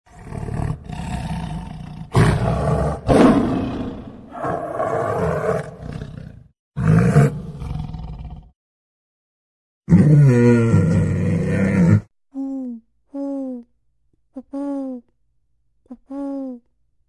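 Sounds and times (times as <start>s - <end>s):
tiger roaring and growling: 0.1s - 8.5s, 9.9s - 12.1s.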